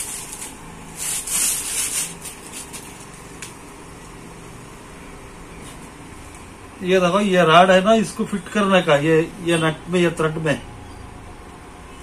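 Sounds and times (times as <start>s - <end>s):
landing net rubbing scrapes: 0.0s - 2.8s.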